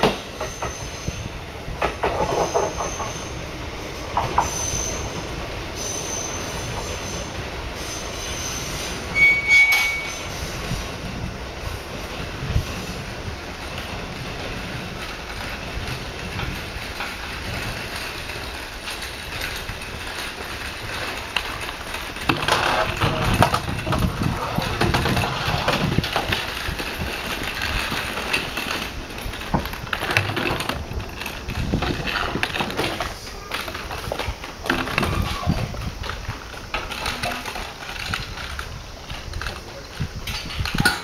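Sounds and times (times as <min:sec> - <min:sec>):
clatter and knocks: 0:01.8 - 0:03.2, 0:13.7 - 0:41.0
voices: 0:31.6 - 0:40.2.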